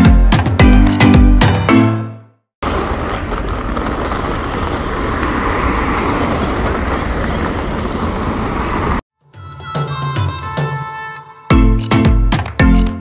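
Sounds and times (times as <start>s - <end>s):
suitcase wheels rolling on asphalt: 2.6s - 9.0s.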